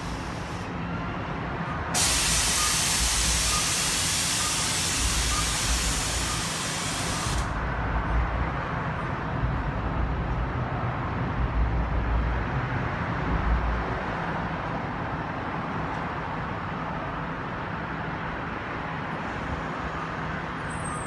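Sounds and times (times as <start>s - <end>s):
bus air brake hiss: 0.0s - 0.8s, 1.9s - 7.6s
bus engine idling: 0.0s - 10.7s.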